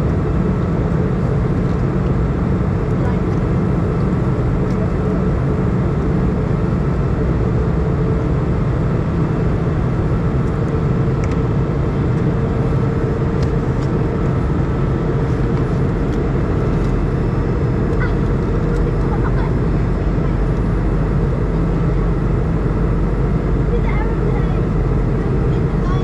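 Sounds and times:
airplane cabin engine drone: 0.0s - 26.0s
low hum: 0.0s - 26.0s.

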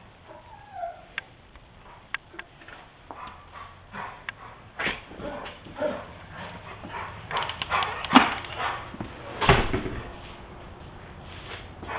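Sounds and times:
dog barking: 3.1s - 4.6s, 5.2s - 6.2s
thump: 9.4s - 10.1s.

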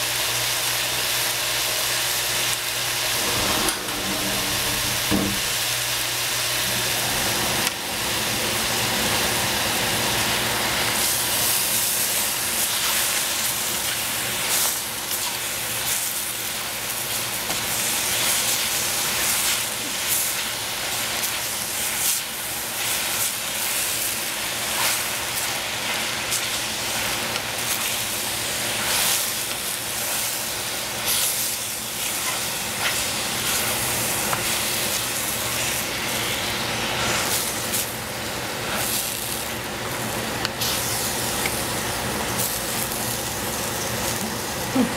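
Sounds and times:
cabbage sizzling in a saucepan: 0.0s - 44.9s
wooden spatula scraping and knocking: 3.1s - 5.6s.

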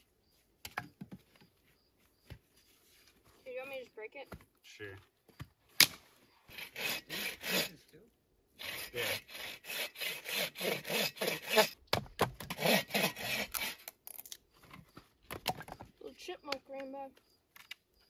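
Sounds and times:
bow saw cutting wood: 6.5s - 7.9s, 8.6s - 11.8s, 12.4s - 14.0s.

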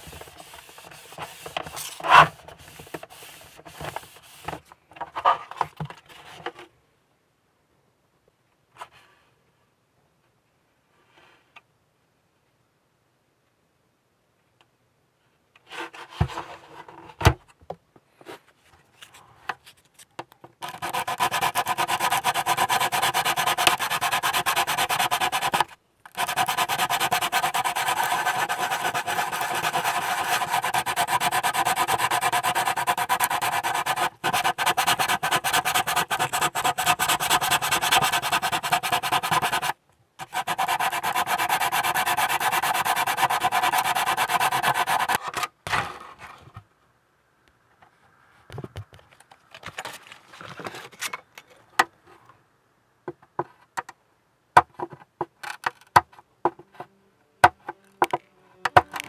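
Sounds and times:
sanding plastic by hand: 0.0s - 4.6s, 20.6s - 45.2s.

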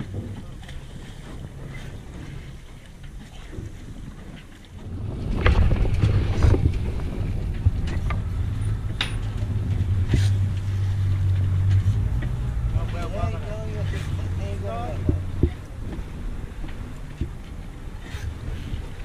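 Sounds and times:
motorboat engine: 0.0s - 19.0s
water splashing against hull: 0.0s - 19.0s
wind on microphone: 0.0s - 19.0s.

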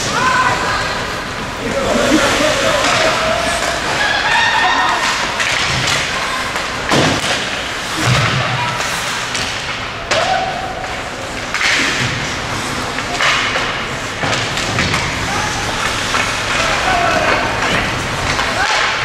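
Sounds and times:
voices calling out: 0.0s - 6.9s
ice rink hubbub: 0.0s - 19.0s
dull thuds on rink boards: 5.0s - 10.5s.

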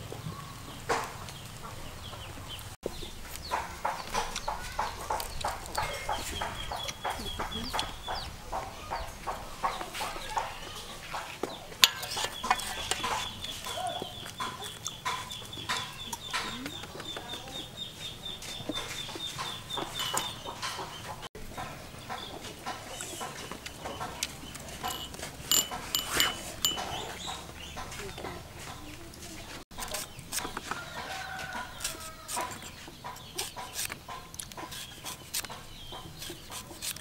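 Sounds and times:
chickens clucking: 0.0s - 37.0s
metal spoon scraping and tapping shell: 11.8s - 13.6s, 19.7s - 20.8s, 24.2s - 27.2s.

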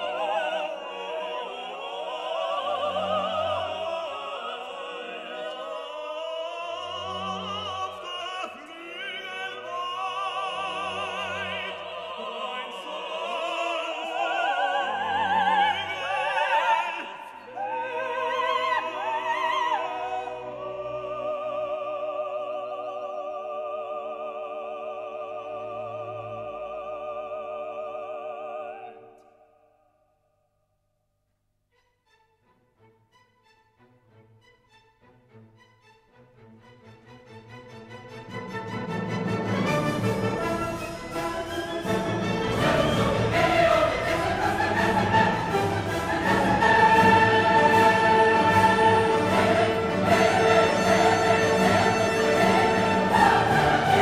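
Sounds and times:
operatic singing: 0.0s - 29.7s, 35.0s - 54.0s
orchestra playing: 31.8s - 54.0s.

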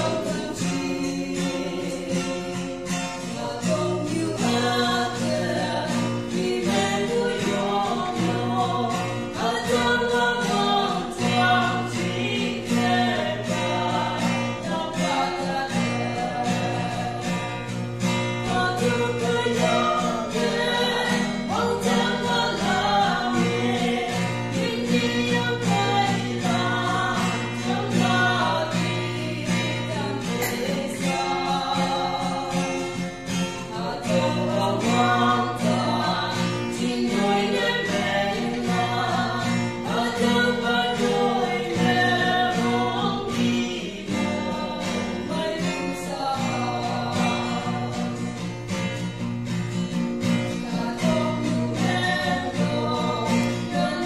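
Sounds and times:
man singing: 0.0s - 17.7s, 18.4s - 48.4s, 50.6s - 54.0s
acoustic guitar strumming: 0.0s - 54.0s.

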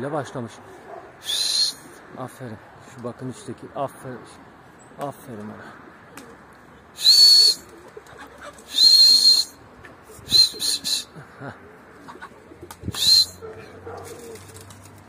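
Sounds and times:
pigeons cooing: 7.0s - 15.0s.

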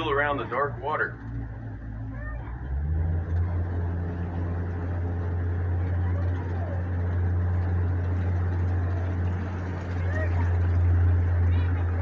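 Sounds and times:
boat motor running steadily: 0.0s - 12.0s.

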